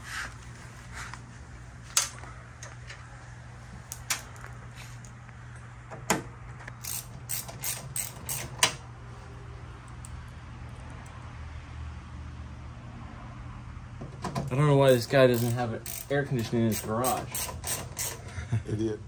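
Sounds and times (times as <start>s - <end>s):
metal parts clicking: 6.8s - 8.8s, 14.8s - 18.2s.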